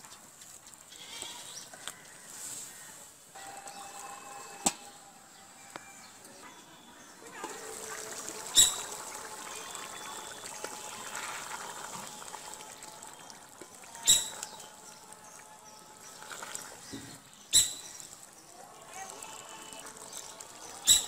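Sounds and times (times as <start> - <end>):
curry bubbling and sloshing: 7.1 - 21.0.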